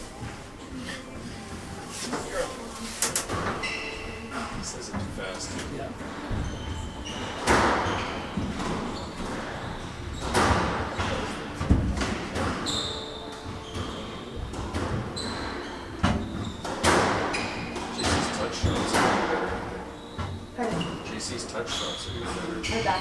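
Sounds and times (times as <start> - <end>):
sneakers squeaking on wooden floor: 3.3 - 4.6, 6.0 - 23.0.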